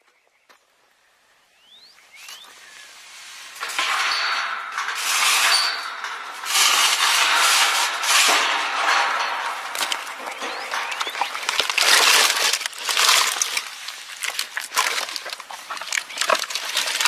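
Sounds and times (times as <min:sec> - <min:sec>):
camel crunching cactus: 0:10.9 - 0:17.0.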